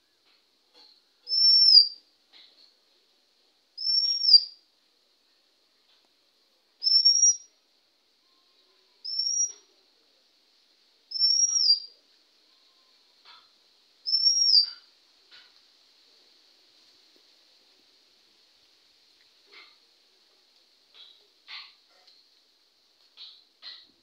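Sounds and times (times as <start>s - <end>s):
bird whistling high notes: 14.1s - 14.7s.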